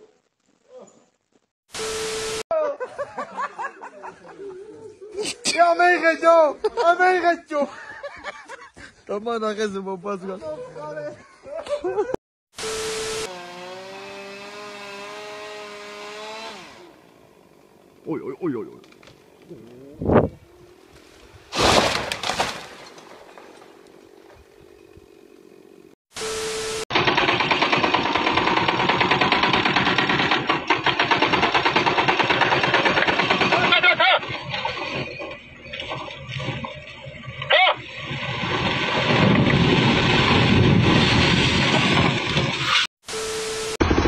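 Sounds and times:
chainsaw at high revs: 13.0s - 17.0s
heavy machinery rattling: 27.0s - 35.3s.

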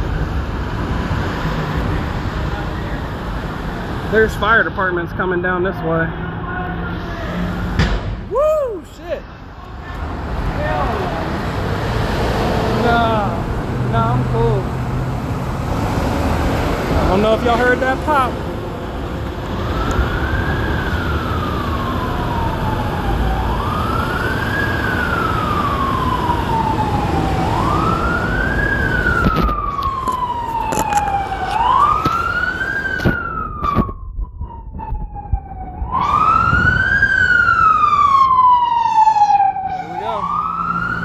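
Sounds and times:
low traffic rumble: 0.0s - 41.0s
emergency vehicle siren wailing: 15.6s - 41.0s.

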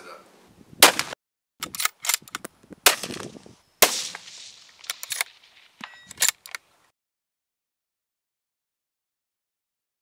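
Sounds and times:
rifle shots: 0.8s - 1.2s, 3.8s - 6.3s
sharp clicks and knocks: 4.7s - 6.6s
brief ringing tone: 5.8s - 6.2s.

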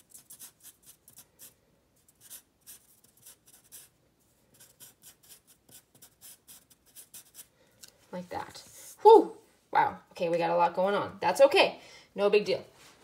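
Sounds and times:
marker scratching on paper: 0.0s - 7.5s.

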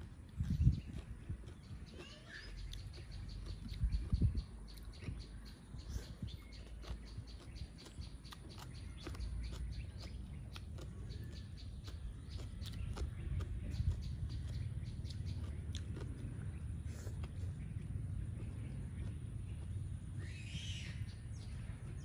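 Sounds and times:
wet chewing and mouth smacks: 0.0s - 20.1s
low uneven rumble: 0.0s - 22.0s.

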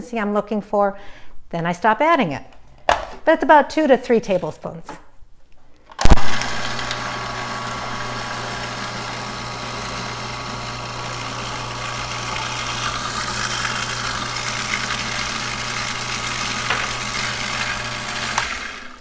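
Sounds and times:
food processor motor humming: 6.0s - 19.0s.

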